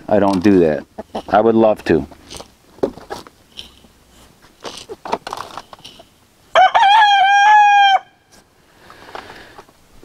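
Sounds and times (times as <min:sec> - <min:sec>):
rooster crowing: 0:06.5 - 0:08.3.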